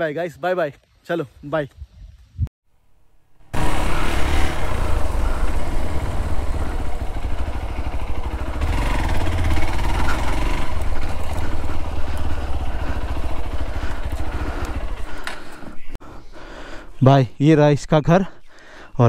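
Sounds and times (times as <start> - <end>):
motorcycle engine running: 3.5 - 16.0.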